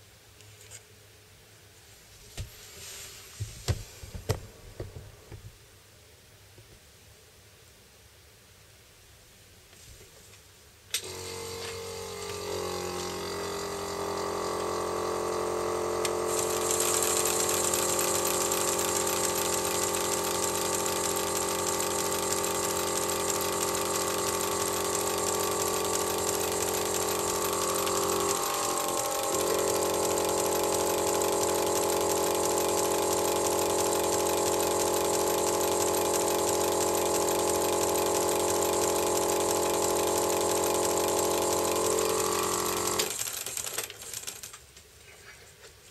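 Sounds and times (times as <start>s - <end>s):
model locomotive whirring hum: 11.0s - 44.6s.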